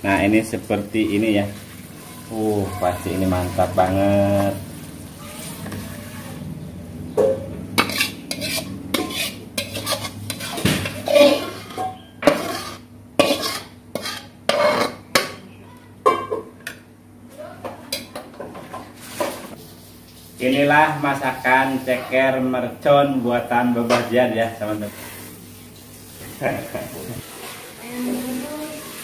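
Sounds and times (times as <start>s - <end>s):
metal utensils scraping a wok: 7.8s - 15.0s.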